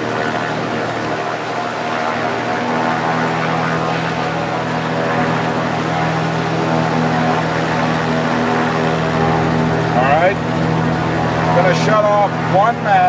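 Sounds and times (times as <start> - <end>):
piston aircraft engine and propeller: 0.0 - 13.0.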